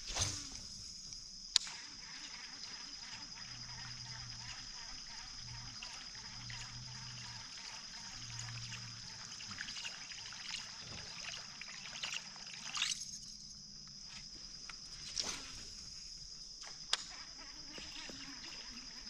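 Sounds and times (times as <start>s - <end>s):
small ticks and clicks: 1.1s - 10.5s
water trickling and dripping: 3.4s - 13.2s.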